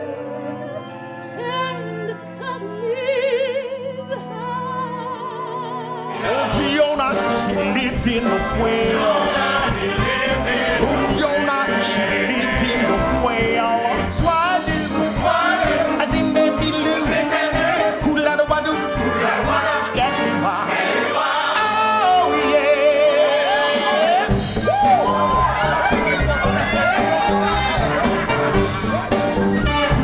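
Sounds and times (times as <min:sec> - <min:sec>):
chorus singing: 0:05.5 - 0:30.0
man singing: 0:06.3 - 0:09.5, 0:10.8 - 0:15.1, 0:15.9 - 0:19.0
band with steady beat: 0:24.3 - 0:30.0.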